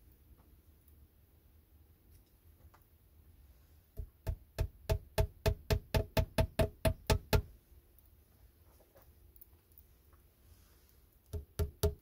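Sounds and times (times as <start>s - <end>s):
axe knocking against log wall: 11.3s - 12.0s.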